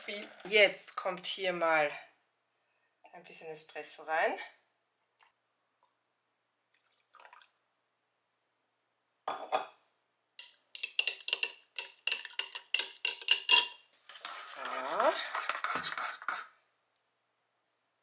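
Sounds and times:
spoon clattering: 10.4s - 13.8s
spoon clinking against glass: 10.4s - 13.8s.

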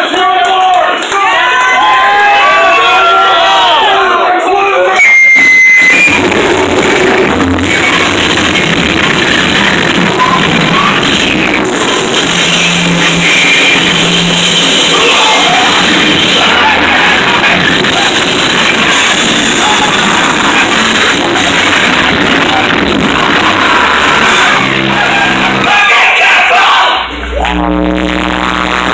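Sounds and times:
crowd whooping: 0.0s - 28.9s
harsh noise music: 4.6s - 28.9s.

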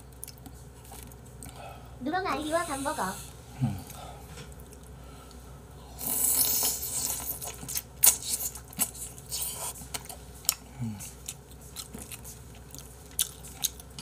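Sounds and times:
wet smacking while chewing: 3.8s - 5.4s, 6.6s - 14.0s
noisy slurp: 4.6s - 10.2s.

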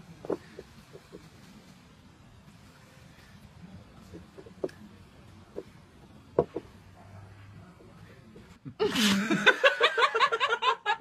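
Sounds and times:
person laughing: 8.7s - 11.0s.

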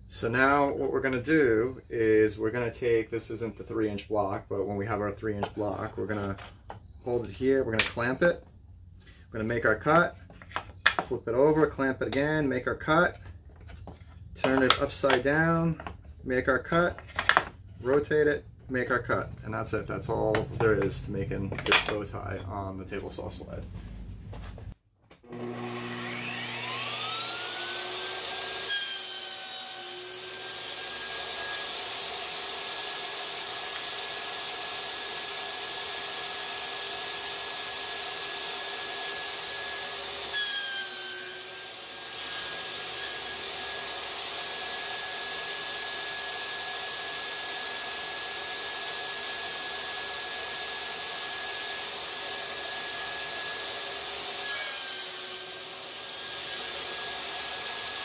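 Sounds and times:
table saw cutting wood: 13.6s - 18.1s, 25.2s - 58.0s.

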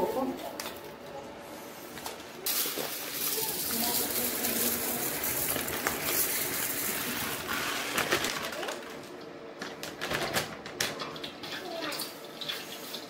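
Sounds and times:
rice pouring into metal bowl: 2.5s - 8.5s.

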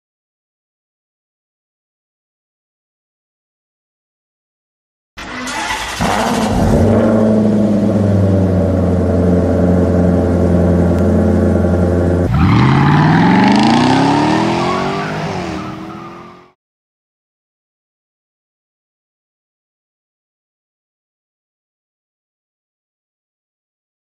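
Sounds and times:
car engine revving: 5.2s - 16.6s.

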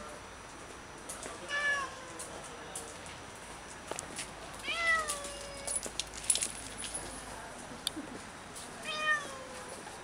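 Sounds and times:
cat meowing: 4.6s - 5.7s, 8.8s - 9.6s.

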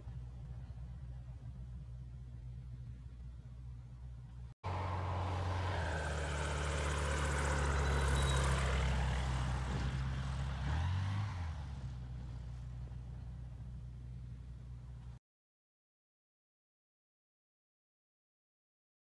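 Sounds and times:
light aircraft flying past: 0.0s - 15.2s.

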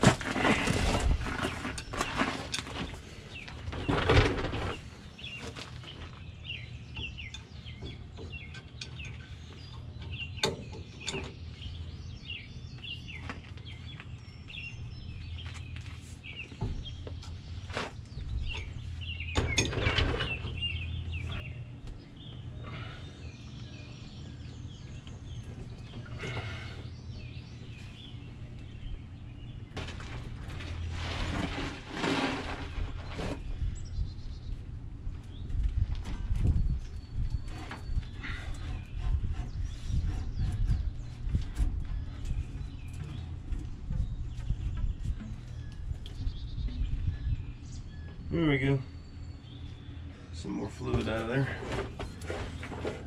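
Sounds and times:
birds chirping: 0.0s - 53.0s
steady low hum: 0.0s - 53.0s
hand tools scraping: 29.8s - 33.5s, 37.4s - 41.2s, 51.0s - 53.0s.

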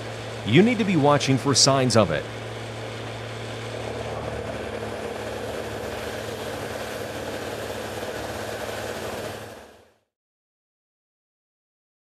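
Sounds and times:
grinder machine drone: 0.0s - 10.1s.

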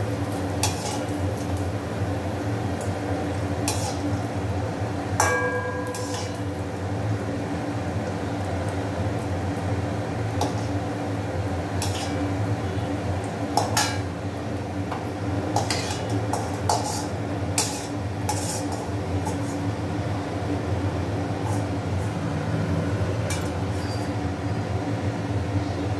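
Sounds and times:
oil sizzling: 0.0s - 25.4s
metal skimmer clinking on pan: 5.2s - 6.6s.

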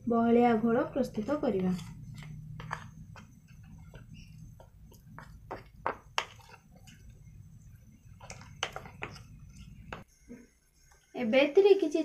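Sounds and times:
spoon stirring wet batter: 0.7s - 11.2s.

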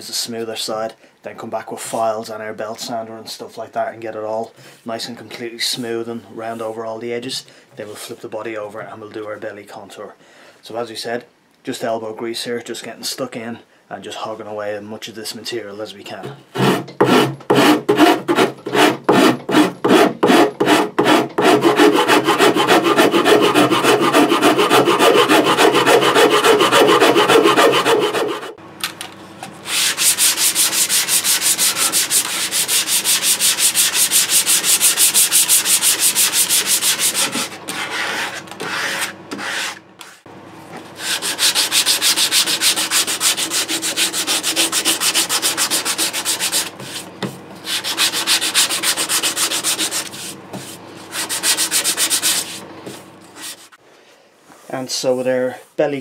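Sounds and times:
rasp rasping wood: 16.5s - 28.6s, 29.7s - 40.2s, 41.0s - 47.1s, 47.7s - 52.6s
hand sanding with sandpaper: 16.6s - 28.6s, 29.7s - 40.3s, 41.0s - 53.8s.

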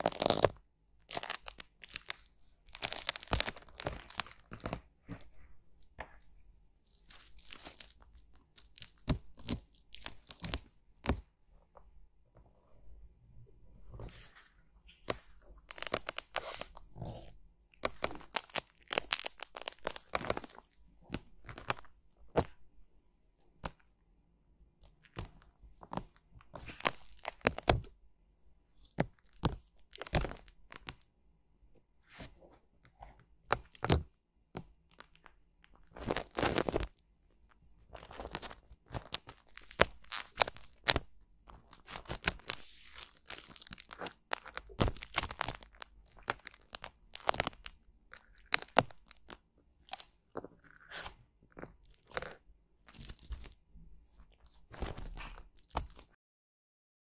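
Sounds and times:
film crackling and tearing: 0.0s - 0.5s, 1.1s - 5.2s, 15.7s - 17.2s, 17.8s - 20.6s, 41.8s - 51.1s.

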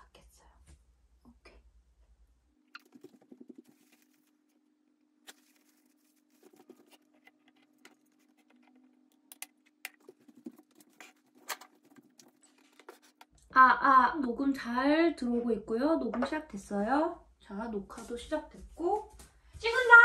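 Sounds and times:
tissue rustling: 3.4s - 4.6s, 5.3s - 7.2s.

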